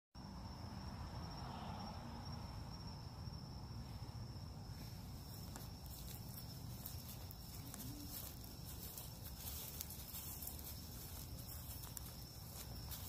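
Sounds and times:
insect trilling: 0:05.2 - 0:13.0.

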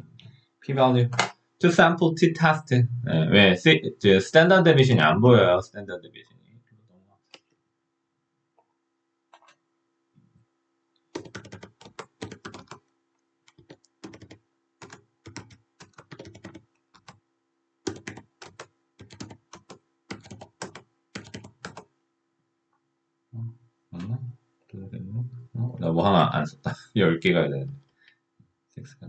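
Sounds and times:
computer keyboard typing: 0:11.1 - 0:12.8, 0:13.5 - 0:17.2, 0:17.9 - 0:21.9.

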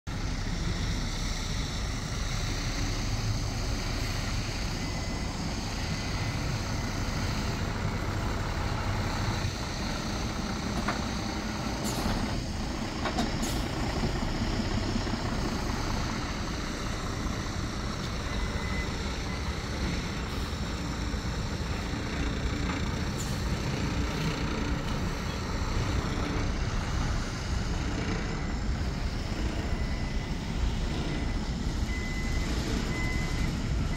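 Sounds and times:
truck diesel engine running: 0:00.1 - 0:33.9
air brakes hissing: 0:11.1 - 0:12.6, 0:13.2 - 0:14.0, 0:23.0 - 0:23.6.

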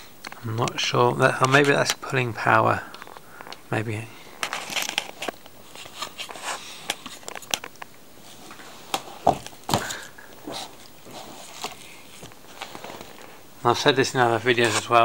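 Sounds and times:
cardboard box handling noise: 0:08.3 - 0:13.4.

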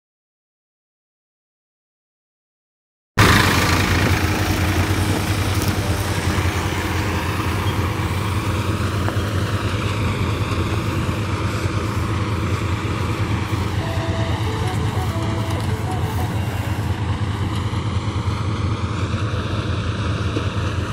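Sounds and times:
heavy machinery engine drone: 0:03.2 - 0:20.9.

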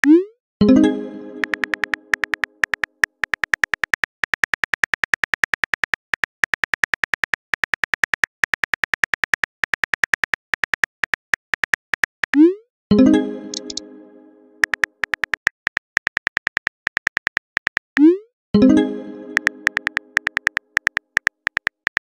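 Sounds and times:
message chime: 0:00.6 - 0:02.1, 0:12.9 - 0:14.6, 0:18.6 - 0:20.2
phone keyboard typing clicks: 0:01.4 - 0:12.4, 0:13.5 - 0:13.8, 0:14.6 - 0:18.1, 0:19.3 - 0:22.0.

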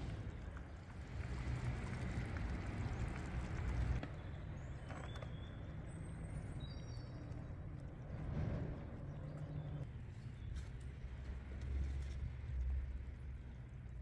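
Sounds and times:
low steady rumble: 0:00.0 - 0:04.8.

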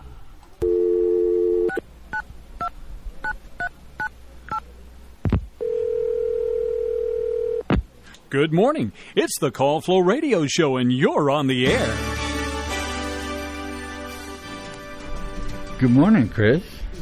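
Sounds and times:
telephone dial tone: 0:00.6 - 0:01.8, 0:05.6 - 0:07.6
telephone ringing tone: 0:00.6 - 0:01.8, 0:05.6 - 0:07.6.

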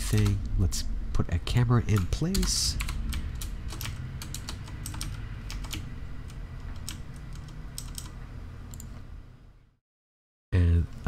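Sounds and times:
low steady hum: 0:00.0 - 0:09.8, 0:10.6 - 0:11.0
computer keyboard keys clicking: 0:01.9 - 0:08.9.

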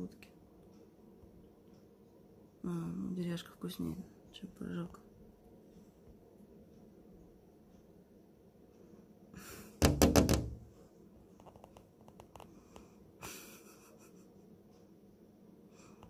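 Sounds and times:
loud knocks: 0:09.8 - 0:10.7.

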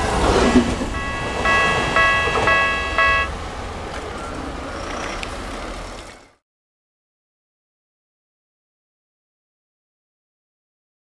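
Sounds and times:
street ambience: 0:00.0 - 0:06.4
train rumbling past: 0:00.0 - 0:06.4
level crossing warning bell: 0:00.8 - 0:05.0.

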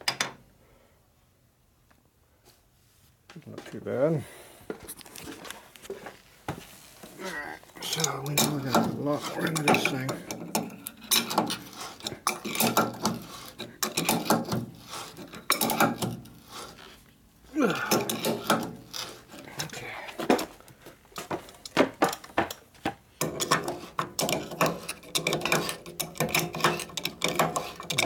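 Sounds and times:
wrench clanking on metal screw: 0:07.3 - 0:16.9, 0:17.6 - 0:20.6, 0:23.2 - 0:28.0.

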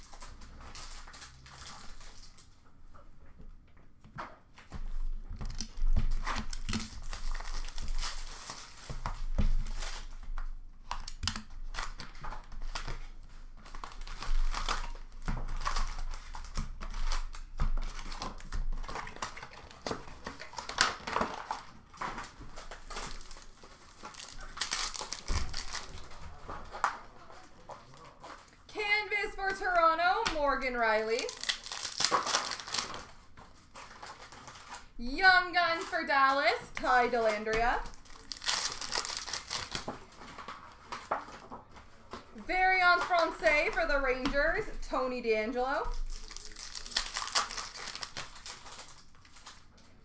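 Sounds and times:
foil wrappers tearing and crinkling: 0:00.0 - 0:02.5, 0:05.4 - 0:27.0, 0:30.8 - 0:34.9, 0:36.8 - 0:41.6, 0:45.8 - 0:50.0
cards being handled: 0:29.4 - 0:34.9, 0:45.9 - 0:49.8.

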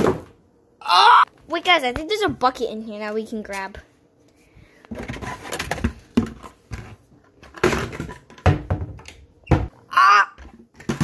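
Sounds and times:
objects knocking and clattering: 0:04.9 - 0:09.7, 0:10.4 - 0:11.0.

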